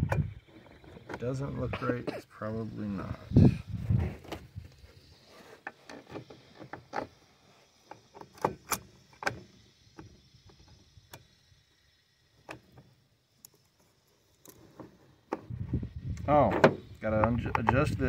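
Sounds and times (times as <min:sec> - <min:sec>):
chainsaw parts clicking and knocking: 0:16.6 - 0:18.0.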